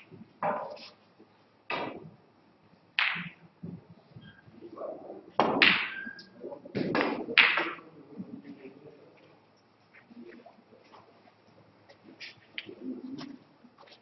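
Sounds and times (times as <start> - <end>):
snooker balls clicking: 6.7 - 7.9.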